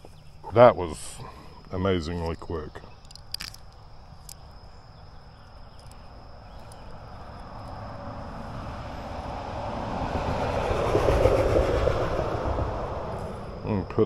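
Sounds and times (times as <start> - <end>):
high insect trill: 0.0 - 14.0
fishing tackle clicks: 2.2 - 4.5, 5.4 - 7.8
passing vehicle rumble: 6.0 - 14.0.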